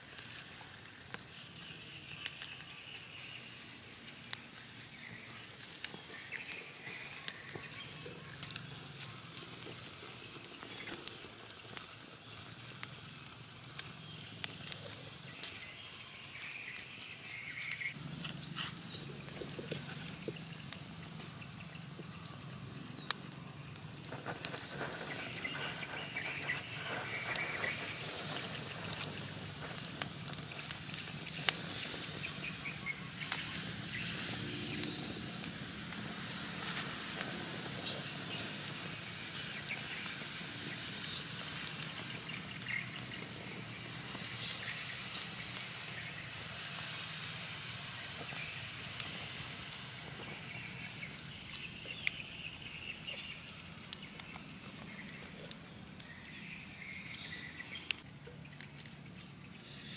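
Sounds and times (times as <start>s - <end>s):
sizzling hiss: 0.0s - 58.0s, 59.6s - 59.9s
wood fire crackling: 0.0s - 59.9s
faint birds calling: 1.2s - 12.9s, 13.7s - 35.4s, 50.0s - 59.9s.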